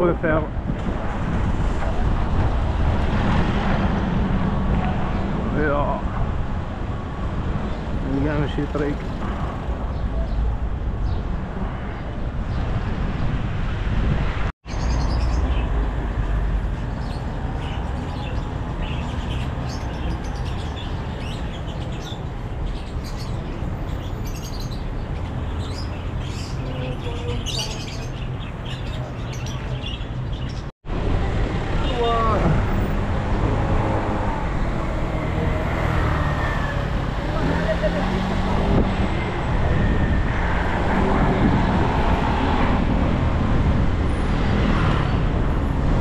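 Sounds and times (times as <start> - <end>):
small birds chirping: 14.6 - 30.7.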